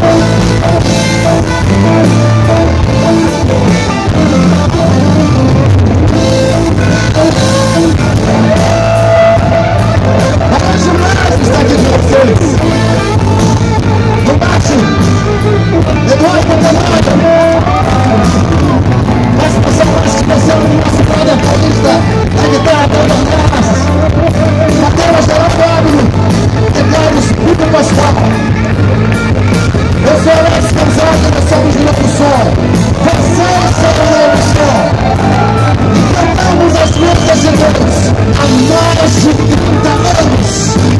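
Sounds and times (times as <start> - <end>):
drum kit: 0.0 - 40.9
electric bass: 0.0 - 40.9
electric guitars: 0.0 - 40.9.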